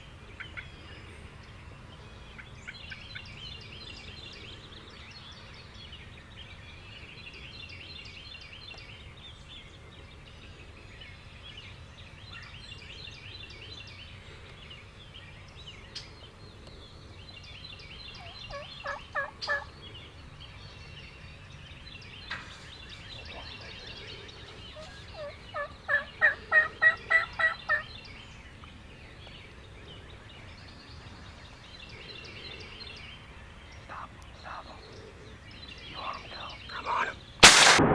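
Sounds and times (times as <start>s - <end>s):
wild turkeys calling: 18.2s - 19.8s, 23.2s - 27.9s, 33.8s - 37.8s.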